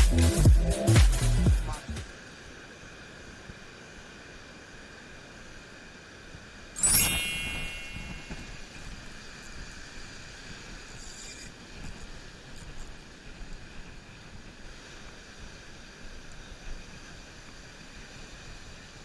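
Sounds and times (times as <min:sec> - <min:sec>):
ringing metallic clink: 0:06.8 - 0:08.6.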